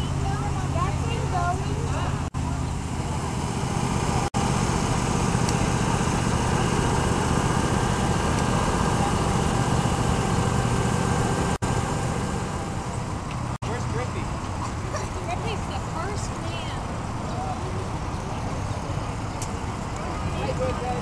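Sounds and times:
faint voices: 0:13.6 - 0:21.0.

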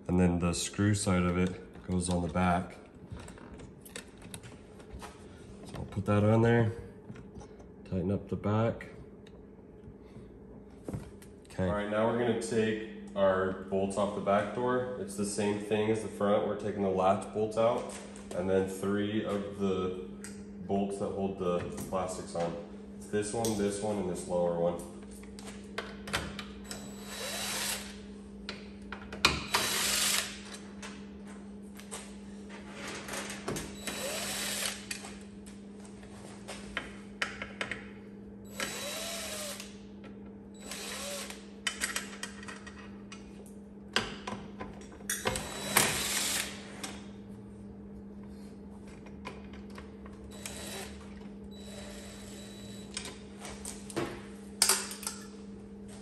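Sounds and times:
steady low hum: 0:00.0 - 0:56.0
cordless screw gun whirring: 0:26.7 - 0:28.0, 0:29.5 - 0:30.4, 0:33.8 - 0:35.0, 0:38.5 - 0:39.8, 0:40.6 - 0:41.4, 0:45.3 - 0:46.6, 0:50.3 - 0:52.9.

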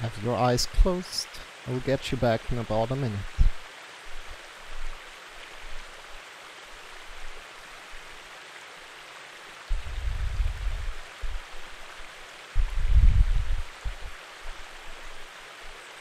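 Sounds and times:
stream water rushing: 0:00.0 - 0:16.0
low bumps and rumbling: 0:03.2 - 0:03.6, 0:09.7 - 0:11.4, 0:12.6 - 0:14.2.

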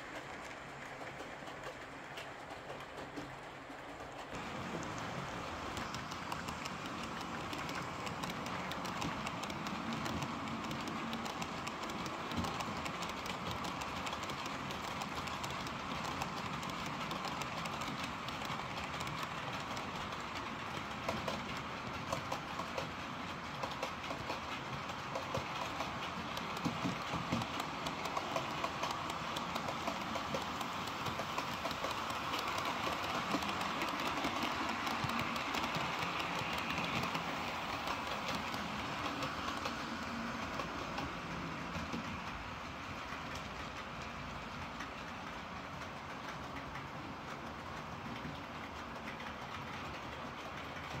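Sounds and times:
model train wheels and motors whirring: 0:00.0 - 0:51.0.

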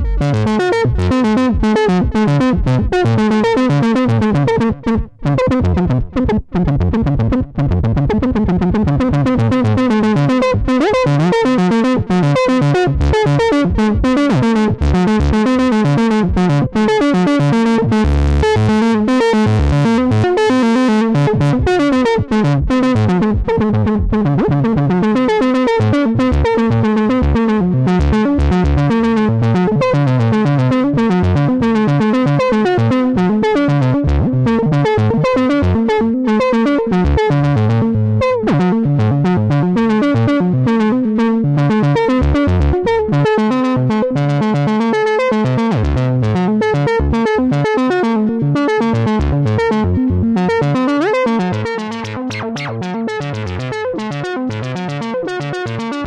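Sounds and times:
synthesizer pitch glide: 0:52.0 - 0:53.3
synthesizer repeating notes: 0:52.0 - 0:53.4.

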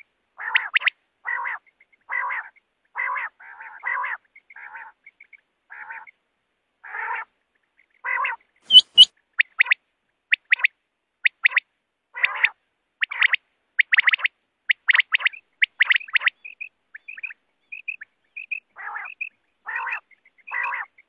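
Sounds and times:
quail rasping calls: 0:00.4 - 0:06.2, 0:06.8 - 0:07.3, 0:07.9 - 0:11.6, 0:12.2 - 0:21.0
quail whistled notes: 0:08.7 - 0:09.1
quick high whistles: 0:08.7 - 0:09.1.

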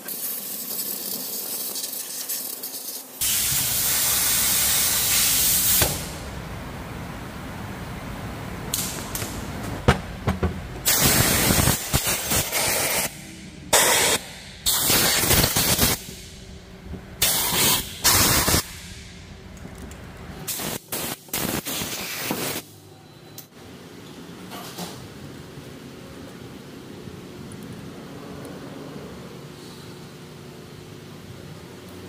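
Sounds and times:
pressurised spray hissing: 0:00.0 - 0:06.1, 0:10.8 - 0:13.1.

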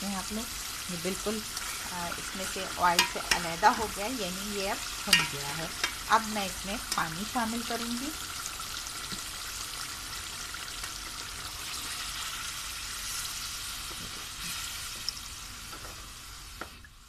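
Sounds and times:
masala sizzling in a pot: 0:00.0 - 0:17.0
metal spoon stirring: 0:05.1 - 0:06.0.

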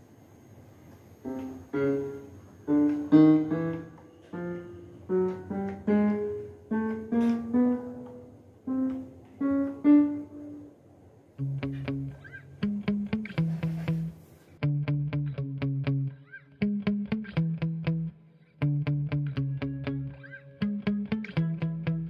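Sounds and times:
keyboard single notes: 0:01.2 - 0:10.8.

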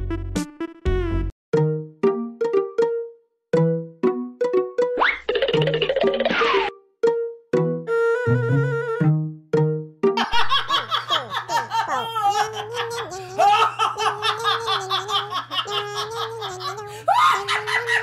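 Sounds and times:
woman laughing loudly: 0:10.2 - 0:18.0.

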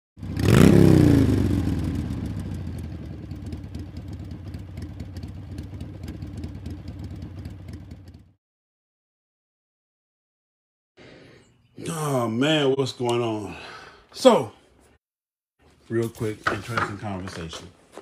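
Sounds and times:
motorcycle engine revving: 0:00.2 - 0:08.4
motorcycle engine idling: 0:01.1 - 0:08.4.

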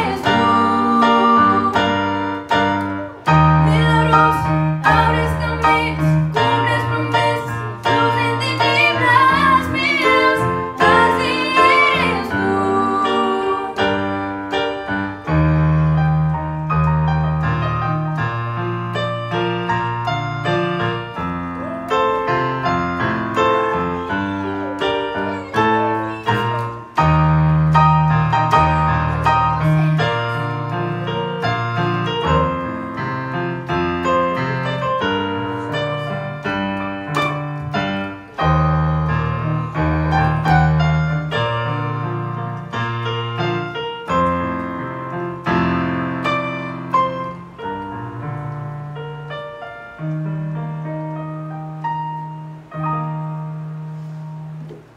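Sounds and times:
person singing: 0:00.0 - 0:02.4, 0:03.0 - 0:14.0
keyboard playing piano passage: 0:00.0 - 0:54.9.

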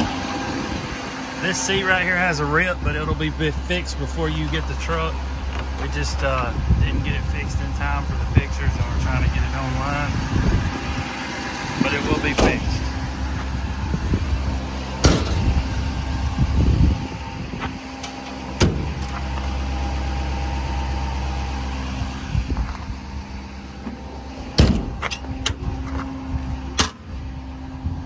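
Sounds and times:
diesel engine idling: 0:00.0 - 0:28.0
metal compartment doors banging: 0:12.1 - 0:12.9, 0:15.0 - 0:15.6, 0:18.0 - 0:19.2, 0:23.8 - 0:25.8, 0:26.8 - 0:27.0.

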